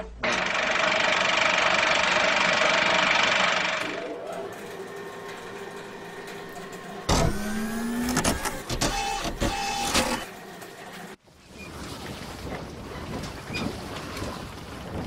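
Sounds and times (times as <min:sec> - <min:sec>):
mechanical whirr with clicks: 0:03.7 - 0:10.3.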